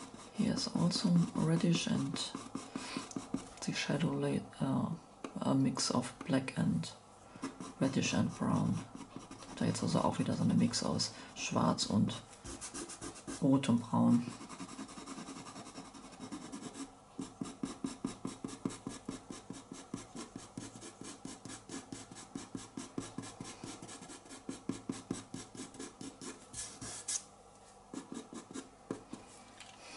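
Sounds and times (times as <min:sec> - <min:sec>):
pencil scratching on paper: 0:00.0 - 0:03.5, 0:07.4 - 0:10.0, 0:12.5 - 0:13.6, 0:14.2 - 0:27.2, 0:27.9 - 0:29.2.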